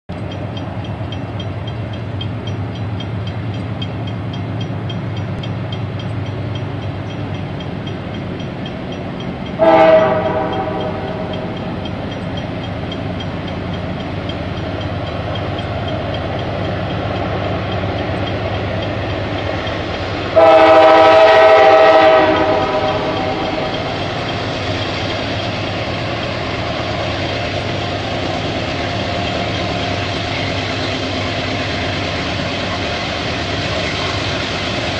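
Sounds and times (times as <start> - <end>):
locomotive rumbling: 0.1 - 34.9
train air horn blasts: 9.6 - 11.6, 20.3 - 24.0.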